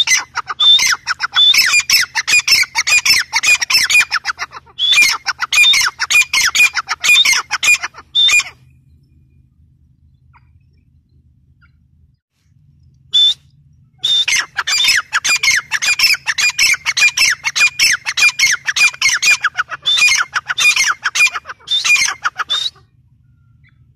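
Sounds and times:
francolin calling harsh repeated notes: 0.0 - 8.8, 14.0 - 23.9.

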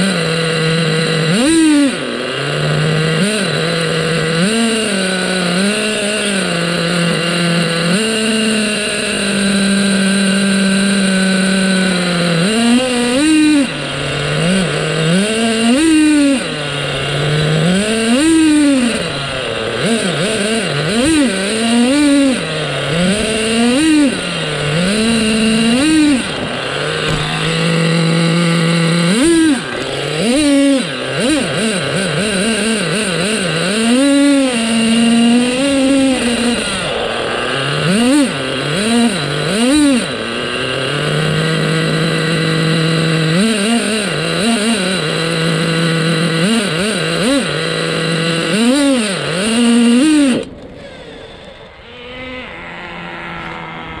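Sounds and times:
nitro engine revving: 0.0 - 54.0.

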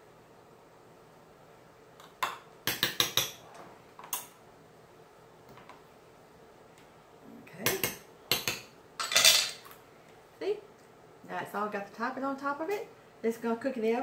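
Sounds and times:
metal spoon clinking on dish: 8.4 - 9.6.

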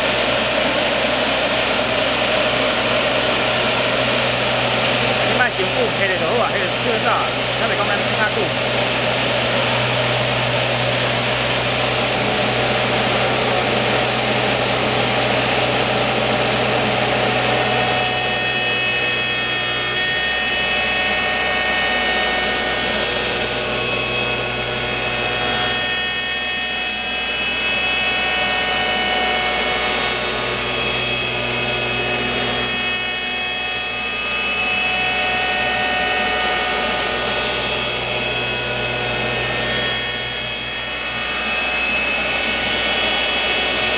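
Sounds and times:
low motor hum: 0.0 - 43.9
machine cutter carving wood: 0.0 - 43.9.

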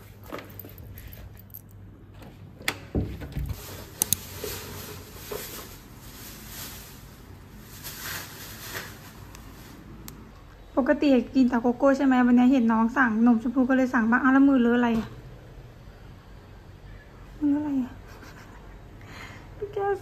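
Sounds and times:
plastic packet rustling: 3.5 - 10.0.

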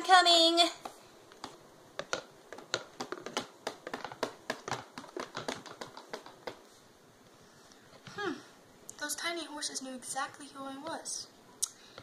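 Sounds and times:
toy horse tapping on wooden floor: 0.8 - 6.6.

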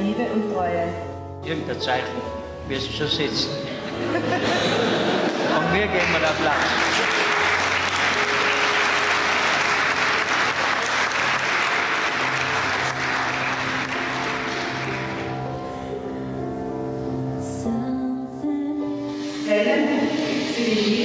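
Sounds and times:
music of slow held notes: 0.0 - 21.0
guests applauding: 4.5 - 16.2.

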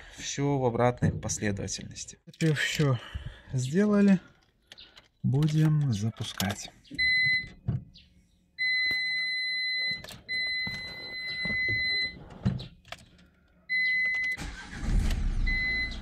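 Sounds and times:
car warning chime beeping: 7.0 - 7.6, 8.6 - 12.2, 13.7 - 14.8, 15.5 - 16.0
diesel engine cranking and running: 14.3 - 16.0.

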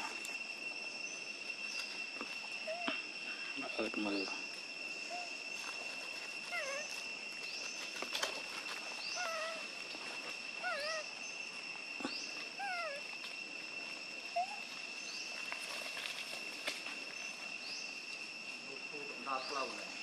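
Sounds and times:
high-pitched insect drone: 0.0 - 20.0
monkey coo calls: 2.2 - 3.6, 5.0 - 5.4, 6.5 - 7.0, 9.0 - 9.8, 10.6 - 13.2, 14.3 - 14.8.

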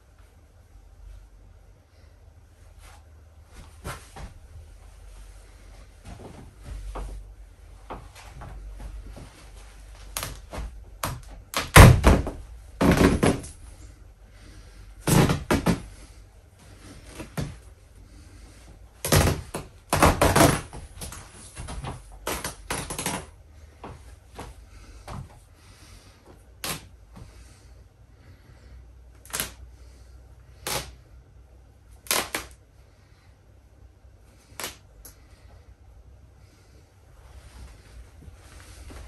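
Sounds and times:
fabric ripping: 10.1 - 13.6, 19.0 - 21.1, 22.2 - 23.3, 29.2 - 29.6, 30.6 - 31.0, 32.0 - 32.6, 34.5 - 34.8
thumps: 10.1 - 13.7, 15.0 - 16.0.

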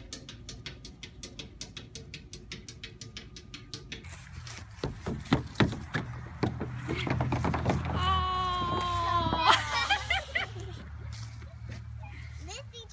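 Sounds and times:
goats bumping plastic slide: 4.1 - 9.6.

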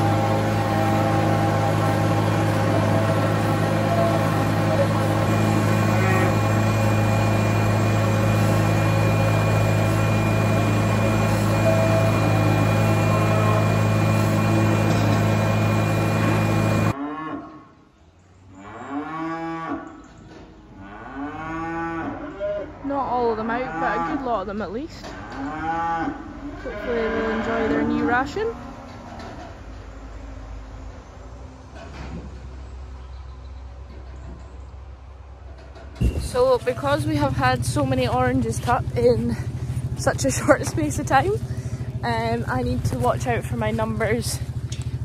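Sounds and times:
calves mooing: 0.0 - 10.8, 18.6 - 20.0, 20.8 - 28.9
vehicle engine running: 0.0 - 17.0, 26.8 - 45.0.

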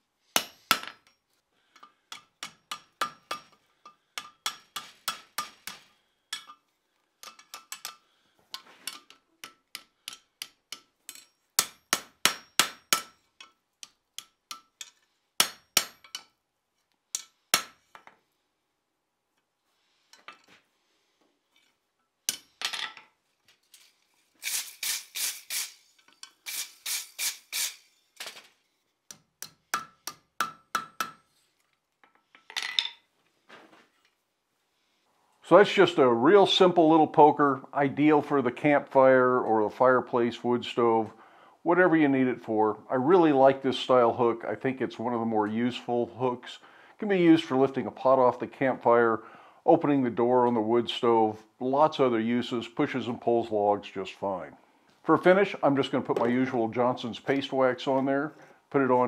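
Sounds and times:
hammer striking hot steel: 9.4 - 13.2, 15.4 - 16.3.

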